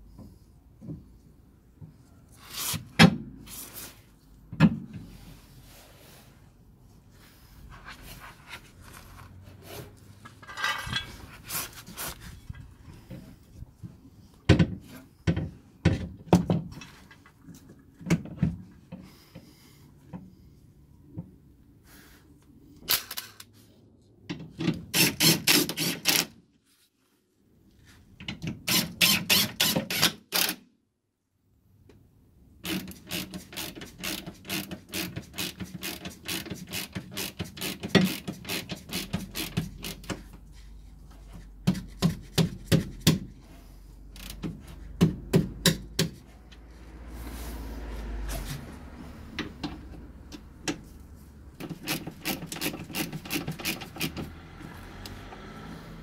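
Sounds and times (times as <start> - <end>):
ratchet wrench clicking: 32.6 - 40.2, 51.7 - 54.3.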